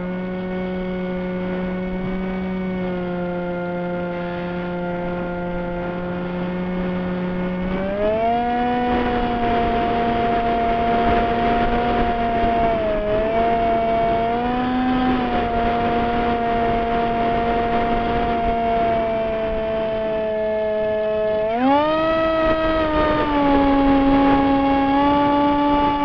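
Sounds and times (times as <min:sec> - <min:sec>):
model plane motor whining: 0:00.0 - 0:26.0
wind rush: 0:03.3 - 0:26.0.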